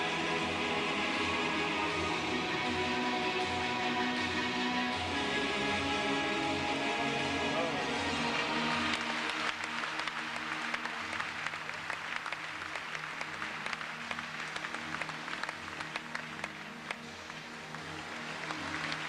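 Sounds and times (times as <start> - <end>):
faint music: 0.0 - 19.0
audience applauding: 7.6 - 19.0.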